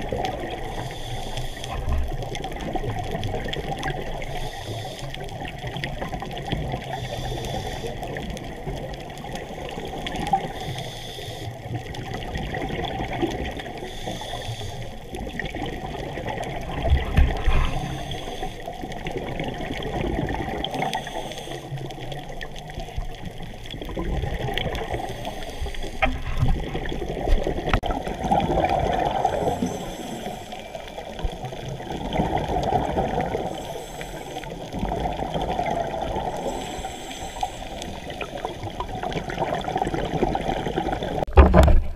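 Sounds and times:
exhaled bubbles bursting underwater: 0:00.0 - 0:00.8, 0:01.7 - 0:04.3, 0:11.6 - 0:13.8, 0:15.0 - 0:18.1, 0:18.7 - 0:21.1, 0:21.8 - 0:25.2, 0:26.0 - 0:33.7, 0:34.3 - 0:41.9
muffled rush of water: 0:00.0 - 0:41.9.

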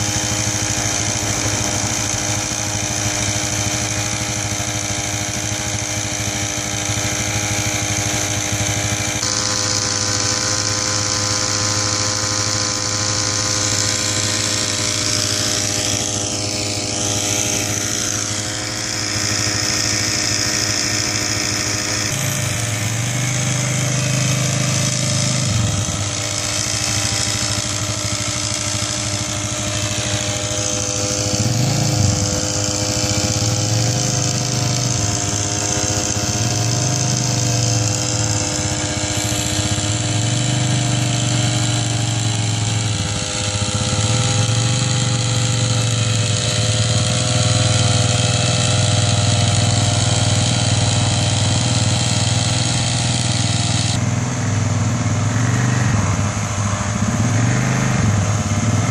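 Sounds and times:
quad bike engine running: 0:00.0 - 0:58.9
small pump engine running: 0:00.0 - 0:58.9.

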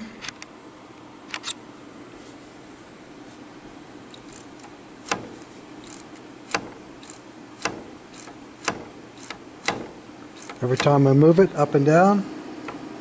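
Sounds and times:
steady low hum: 0:00.0 - 0:13.0
torch lifter sharp clicks: 0:04.1 - 0:11.0.

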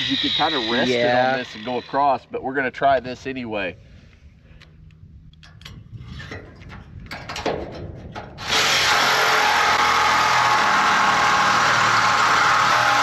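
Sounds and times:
reciprocating saw cutting steel: 0:00.0 - 0:02.2, 0:08.4 - 0:13.0.

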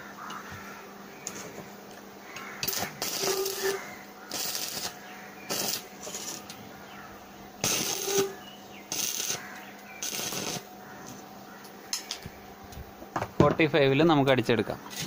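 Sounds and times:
faint steady hum: 0:00.0 - 0:15.0
arc welding crackle: 0:02.2 - 0:12.9.

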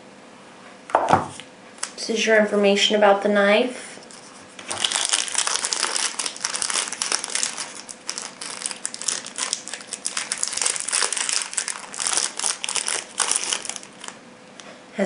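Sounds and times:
plastic sleeve crinkling: 0:04.0 - 0:14.2.

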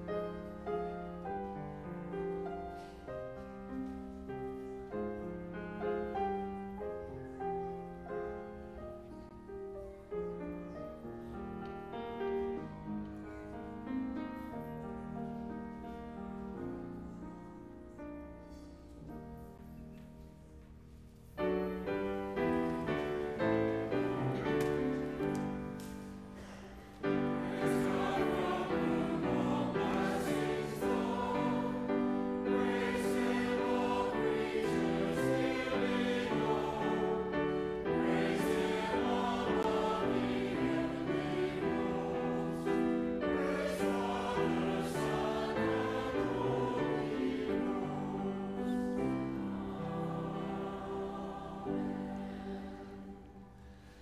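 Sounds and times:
grand piano chords: 0:00.0 - 0:54.0
choir singing: 0:21.4 - 0:54.0.

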